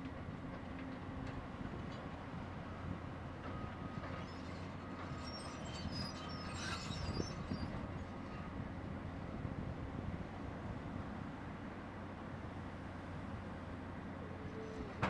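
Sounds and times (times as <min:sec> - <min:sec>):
diesel engines running: 0:00.0 - 0:15.0
metal squeals and creaks: 0:03.5 - 0:08.5.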